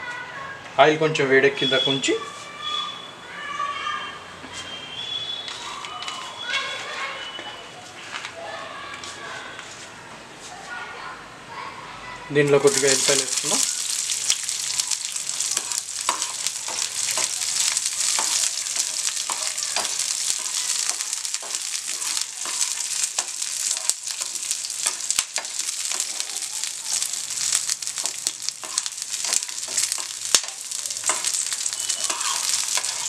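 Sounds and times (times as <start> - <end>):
garlic sizzling in hot oil: 12.5 - 33.0
spatula stirring in pan: 12.7 - 33.0.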